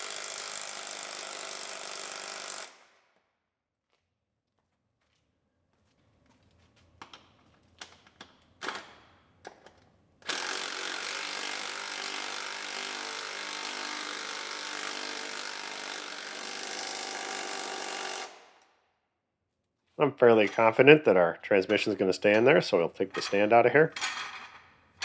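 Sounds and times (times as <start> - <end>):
power tool tightening bolts: 10.2 - 18.4.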